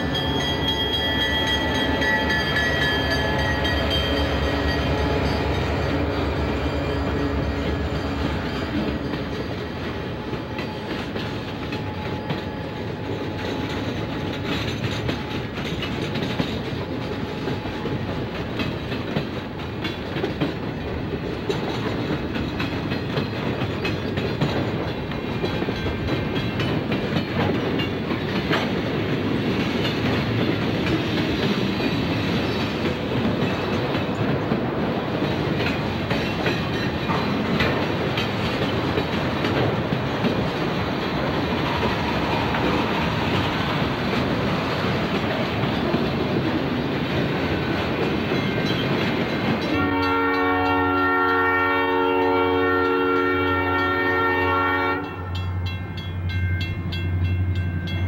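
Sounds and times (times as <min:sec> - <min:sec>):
train wheels rolling on rail: 0:00.0 - 0:58.0
wheels clicking over rail joints: 0:07.6 - 0:50.4.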